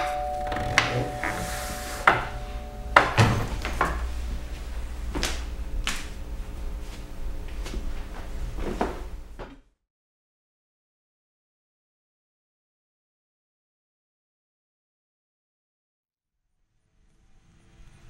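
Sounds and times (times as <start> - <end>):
two-note ringing tone: 0.0 - 5.8
sharp knocks: 0.0 - 6.1
low rumble: 2.3 - 8.6.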